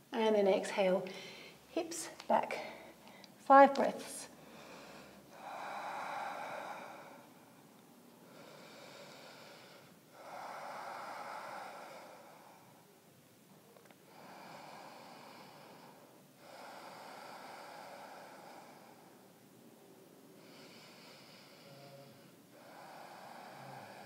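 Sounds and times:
woman breathing deeply: 1.1s - 1.7s, 4.3s - 13.0s, 14.0s - 19.6s, 20.4s - 24.0s.

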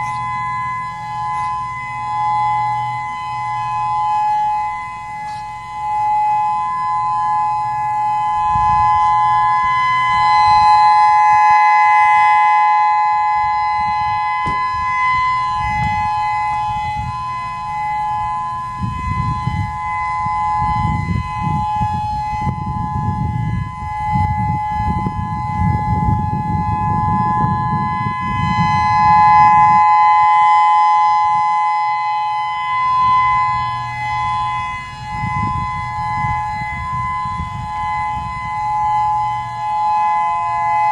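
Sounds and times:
two-tone warning siren: 0.0s - 40.9s.

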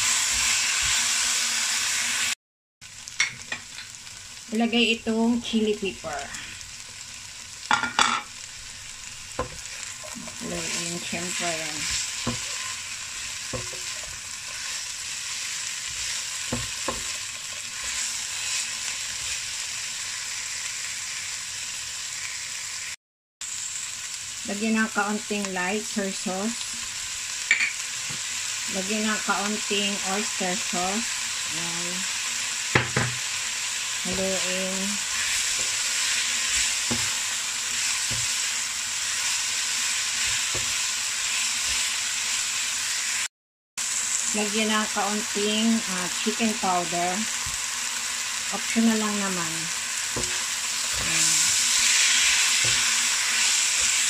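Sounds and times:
vegetables sizzling in a wok: 0.0s - 54.0s
spatula stirring and tossing: 9.3s - 19.6s, 34.0s - 41.9s, 50.0s - 54.0s.

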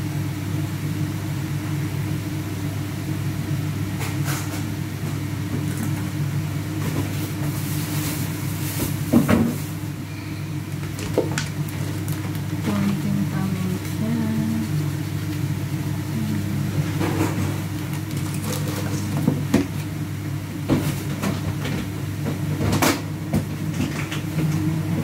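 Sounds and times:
low mechanical hum: 0.0s - 25.0s.

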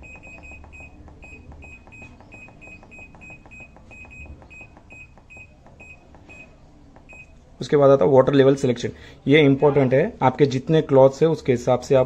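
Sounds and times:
washing machine beeps: 0.0s - 7.4s.

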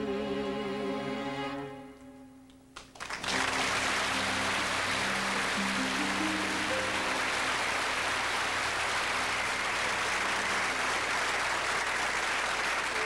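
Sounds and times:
audience applauding: 2.8s - 13.0s.

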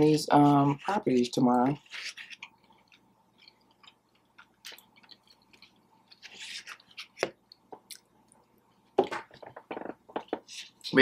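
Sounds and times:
chewing mouth clicks and smacks: 2.8s - 5.8s.

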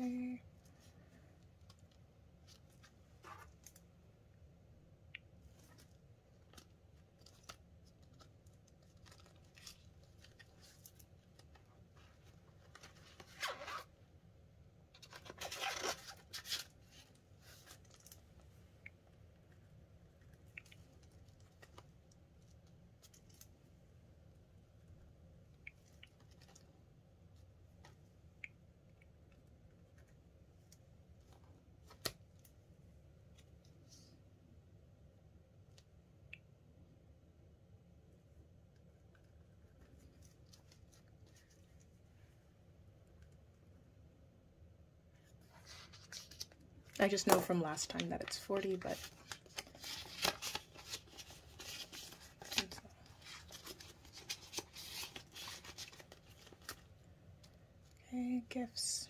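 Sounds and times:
paper and plastic rustling: 5.5s - 13.9s, 14.9s - 18.4s, 45.3s - 57.6s.

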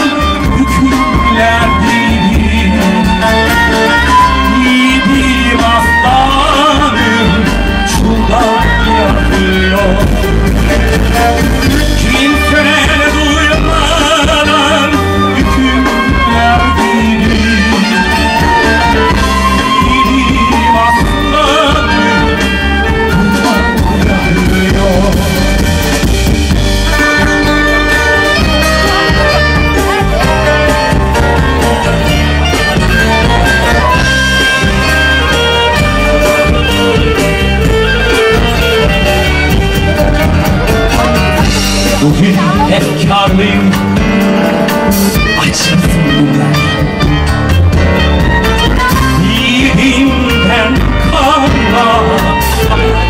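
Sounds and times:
drum kit: 0.0s - 53.0s
live band playing: 0.0s - 53.0s
violin melody: 0.0s - 53.0s.

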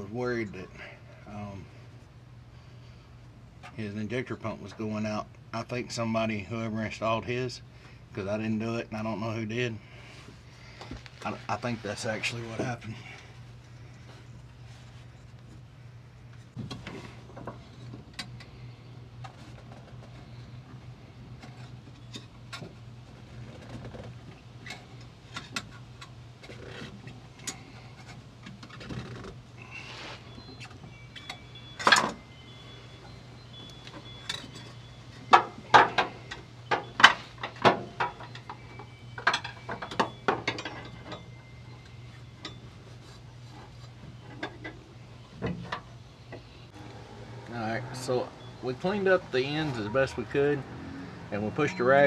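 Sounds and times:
steady low hum: 0.0s - 52.0s
tools and small parts clattering: 21.3s - 32.4s, 33.6s - 45.9s.

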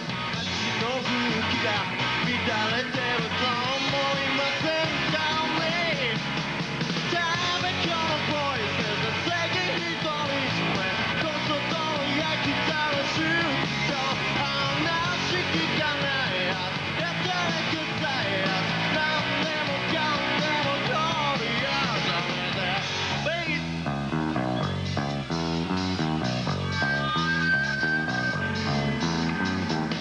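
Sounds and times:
drums: 0.0s - 30.0s
electric guitar: 0.0s - 30.0s
man singing and shouting: 0.2s - 23.9s.

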